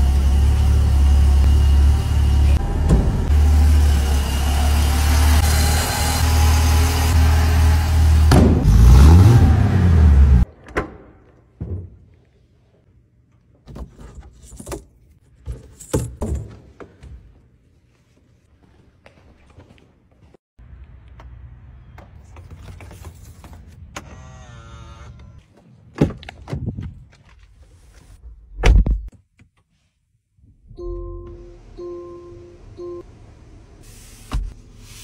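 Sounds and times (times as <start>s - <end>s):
car engine rumbling: 0.0s - 10.4s.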